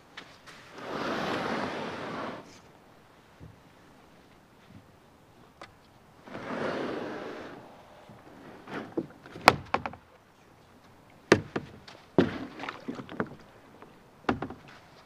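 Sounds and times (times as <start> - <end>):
kayak hull scraping: 0.3 - 2.7, 6.2 - 10.1, 11.4 - 13.7
knocks and thuds on hull: 8.8 - 10.0, 11.3 - 13.4, 14.2 - 14.8.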